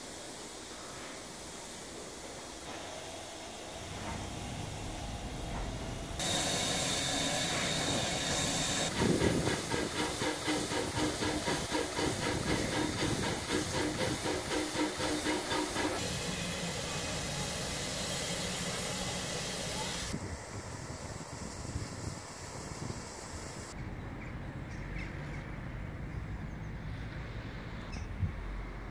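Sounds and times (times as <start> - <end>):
steam locomotive hissing: 0.0 - 23.8.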